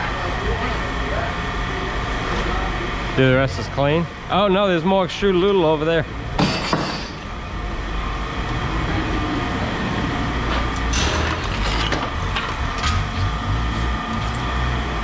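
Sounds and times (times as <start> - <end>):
low engine rumble: 7.3 - 15.0.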